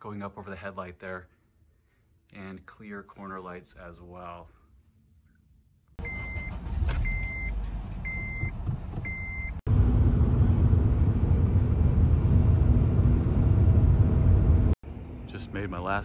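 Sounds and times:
car engine and road noise: 6.0s - 15.3s
low rumble: 9.7s - 15.3s.

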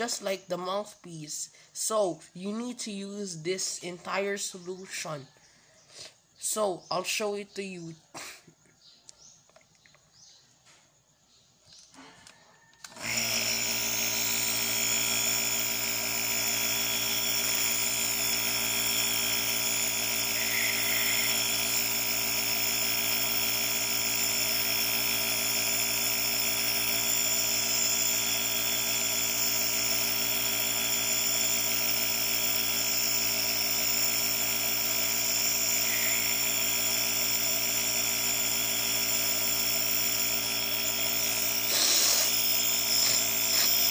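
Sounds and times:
nebulizer compressor humming: 12.8s - 43.9s
air hissing: 41.5s - 43.9s.

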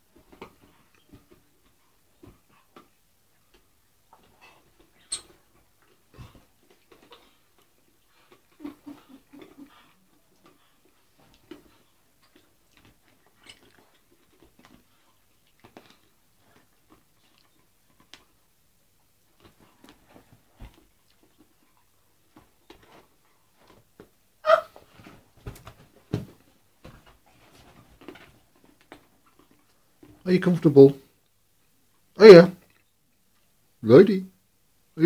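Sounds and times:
dog chewing on a toy: 9.8s - 18.5s.

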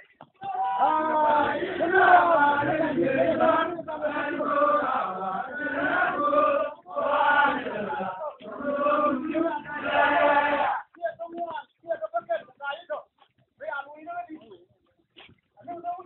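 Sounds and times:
men chanting together: 0.5s - 10.9s.

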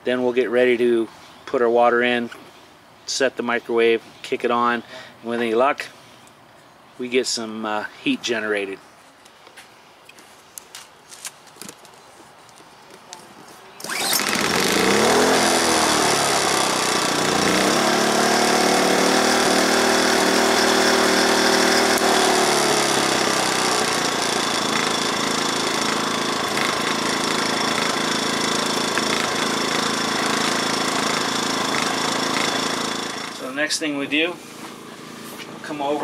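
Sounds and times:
generator engine running: 13.8s - 36.0s.

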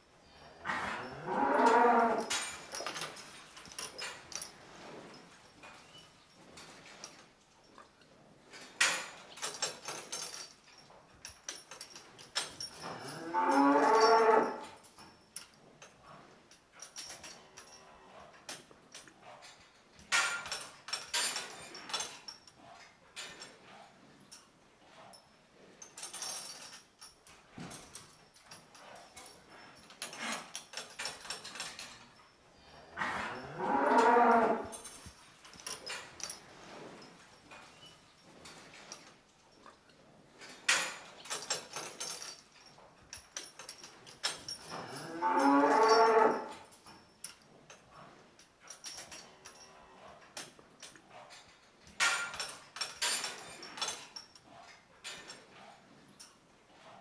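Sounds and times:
cow mooing: 0.6s - 2.3s, 13.0s - 14.6s, 33.0s - 34.8s, 45.0s - 46.5s
light knocks and clatters: 1.1s - 57.0s.

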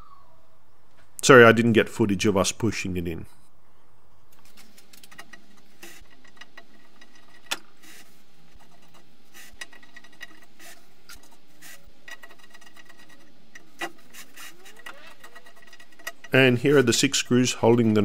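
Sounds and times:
screwdriver scraping: 4.4s - 18.0s.

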